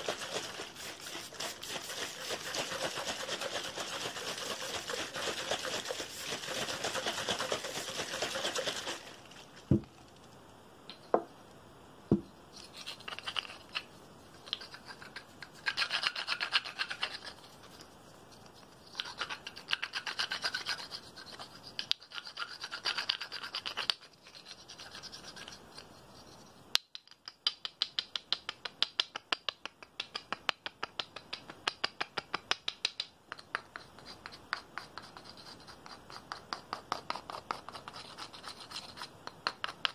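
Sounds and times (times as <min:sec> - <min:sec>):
scratching and rubbing on tubes: 0:00.0 - 0:10.2, 0:12.5 - 0:26.6, 0:33.4 - 0:39.9.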